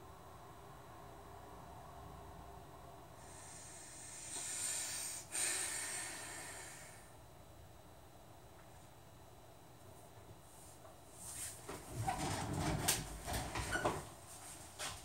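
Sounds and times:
person breathing heavily through nose: 3.2s - 7.2s.

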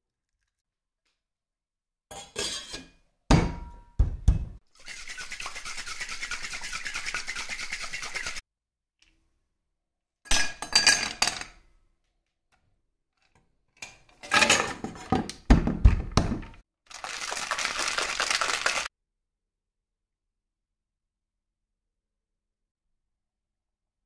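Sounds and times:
shaker rattling with ice: 4.8s - 8.4s, 16.9s - 18.9s
ice clinking into metal shaker: 17.0s - 18.9s.

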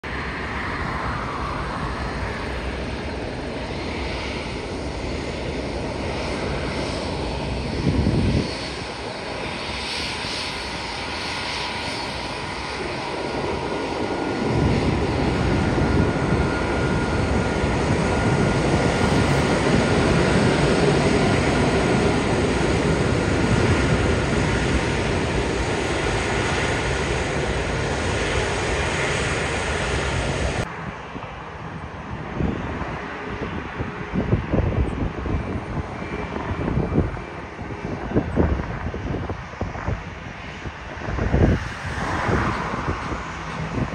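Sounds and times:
jet engines rumbling: 0.0s - 43.9s
low rush: 36.5s - 43.9s.

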